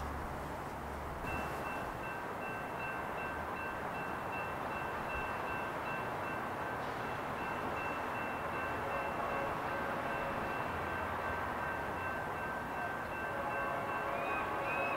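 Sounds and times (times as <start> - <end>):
freight train rushing: 0.0 - 14.9.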